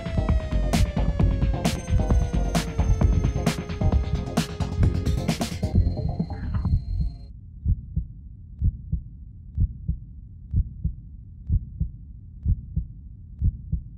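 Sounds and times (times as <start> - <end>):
music: 0.0 - 7.3
heartbeat thumps: 0.1 - 13.9.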